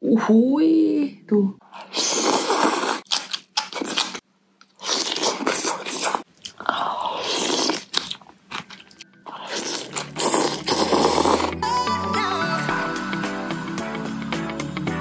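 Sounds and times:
slurping noodles: 1.7s - 4.2s, 4.8s - 11.7s
chewing: 1.7s - 11.6s
crunchy bite: 1.8s - 11.6s.

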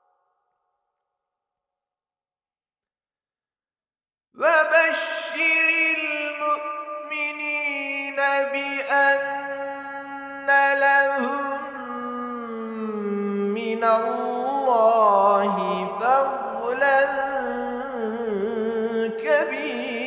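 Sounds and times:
man chanting recitation: 4.4s - 20.0s.

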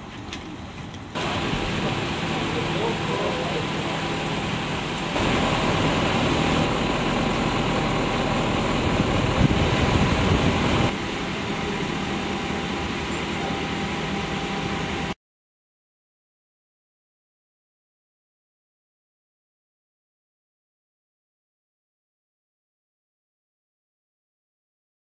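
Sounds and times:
street noise: 0.0s - 15.2s
engine idling: 0.5s - 15.2s.

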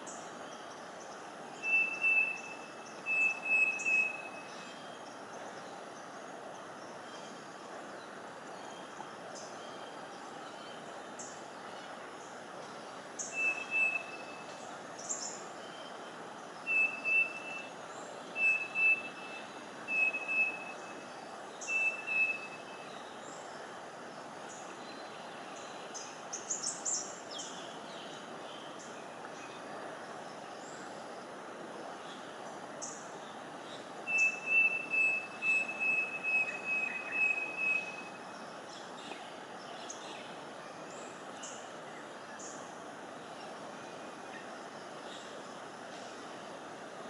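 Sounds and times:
bird whistled calls: 1.6s - 4.6s, 13.2s - 14.6s, 16.7s - 17.7s, 18.4s - 21.0s, 21.6s - 22.9s, 34.1s - 38.2s.

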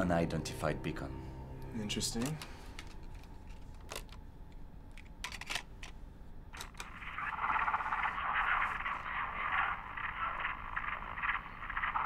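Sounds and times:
crackling radio-like signal: 6.6s - 12.0s.

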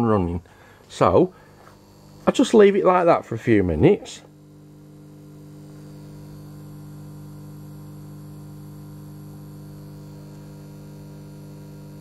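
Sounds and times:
microwave transformer humming: 0.0s - 12.0s.

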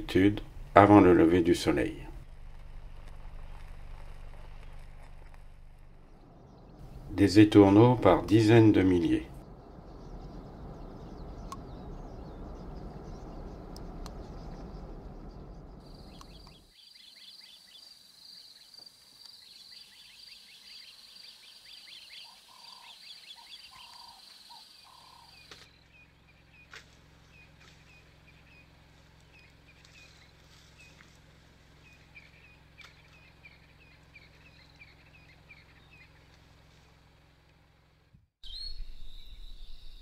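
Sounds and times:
low steady hum: 0.0s - 16.7s, 25.0s - 40.0s
birds chirping: 3.2s - 37.4s, 38.4s - 40.0s
lower bird calls: 3.4s - 37.2s, 38.4s - 40.0s.

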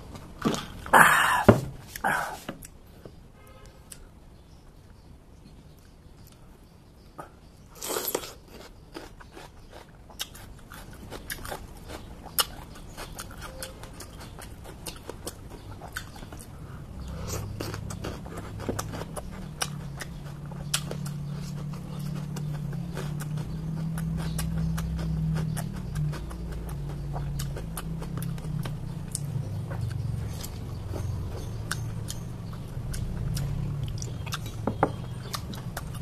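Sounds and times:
crunching raw vegetables: 7.7s - 36.0s.

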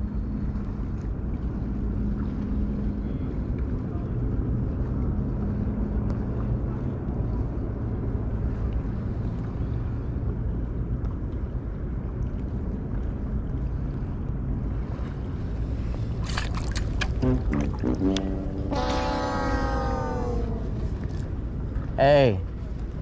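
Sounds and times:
water rumble: 0.0s - 23.0s
wind on microphone: 13.8s - 22.0s
background music: 17.2s - 20.8s.

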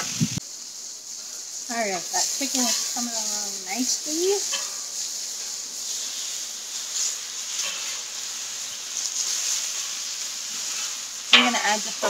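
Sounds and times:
chicken sizzling on a griddle: 0.0s - 12.0s
metal spatula scraping: 4.4s - 6.4s, 7.0s - 8.2s, 9.0s - 12.0s.

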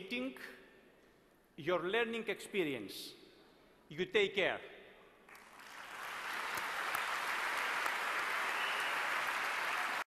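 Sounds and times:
large audience applauding: 5.3s - 10.0s.

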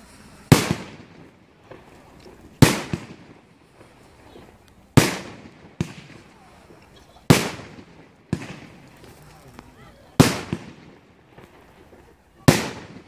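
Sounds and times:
fireworks bangs: 0.0s - 13.0s
fireworks pops: 0.5s - 13.0s.

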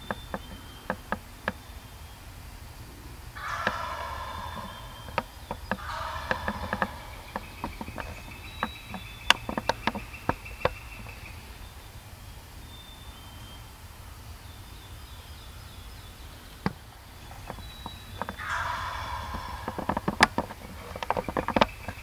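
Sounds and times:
sharp clicks and snaps: 0.0s - 1.7s, 3.3s - 11.4s, 16.6s - 22.0s
faint short high calls: 2.9s - 11.7s, 17.2s - 22.0s.

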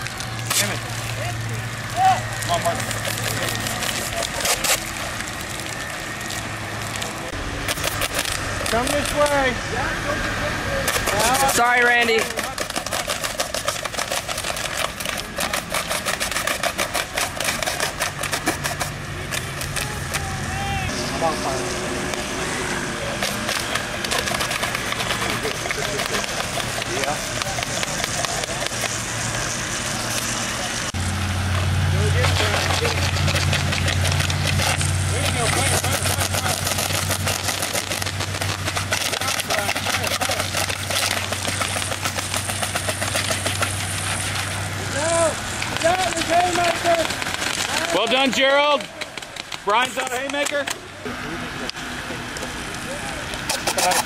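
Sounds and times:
low steady hum: 0.0s - 54.0s
model cannons cracking: 32.4s - 44.6s, 45.5s - 50.8s.

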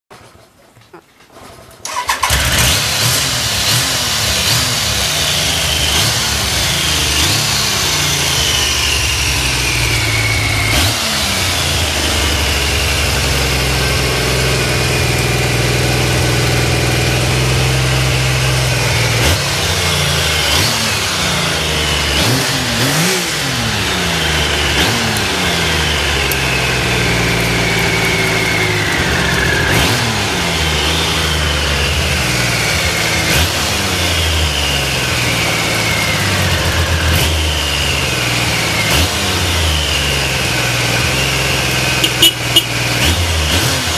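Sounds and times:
engine throttle blips: 1.9s - 43.9s
motorcycle engine idling: 4.2s - 43.5s.

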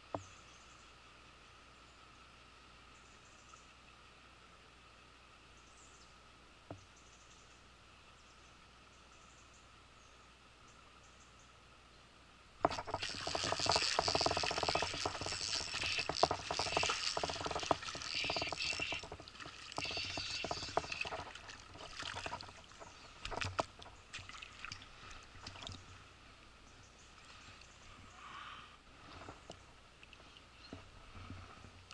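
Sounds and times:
fish splashing in water: 12.6s - 25.8s.

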